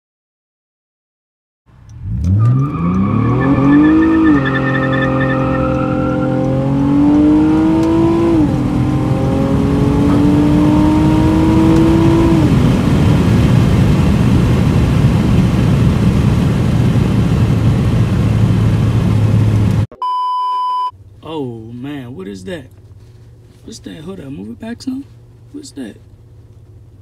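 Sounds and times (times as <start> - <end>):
car engine at full throttle: 1.7 - 19.9, 21.0 - 27.0
road noise: 1.7 - 19.9, 20.9 - 27.0
test-tone beep: 19.9 - 20.9.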